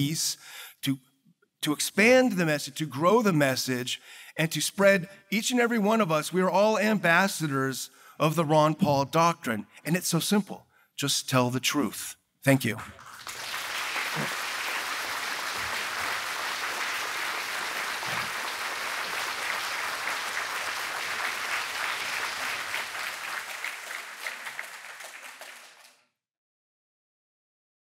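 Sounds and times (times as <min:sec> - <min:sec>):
audience applauding: 0:12.8 - 0:26.0.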